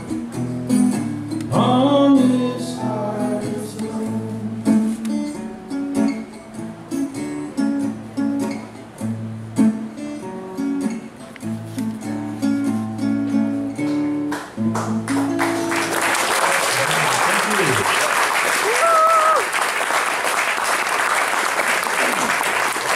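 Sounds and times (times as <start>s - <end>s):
acoustic guitar strumming: 0.0s - 16.1s
person singing: 1.5s - 5.0s.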